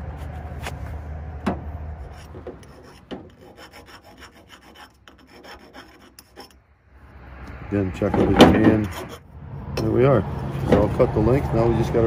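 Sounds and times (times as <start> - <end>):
file scraping on steel: 2.0 - 6.6, 8.2 - 9.3.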